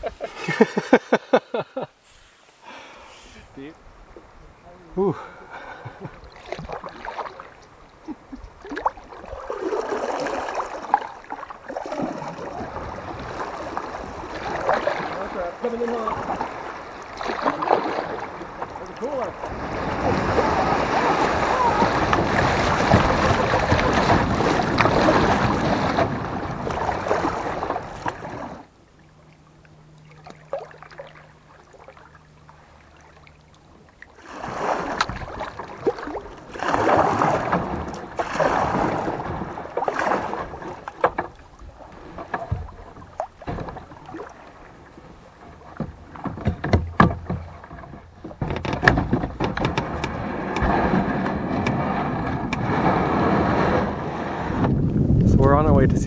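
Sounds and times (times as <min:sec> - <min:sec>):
paddle splashing against kayak: 0:05.2 - 0:55.3
river water rushing: 0:08.7 - 0:28.6.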